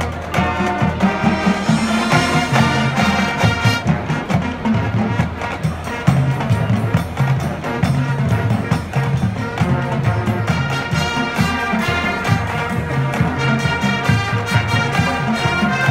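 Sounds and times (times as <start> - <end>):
drum strokes: 0.0 - 5.5
marching band playing: 0.0 - 15.9.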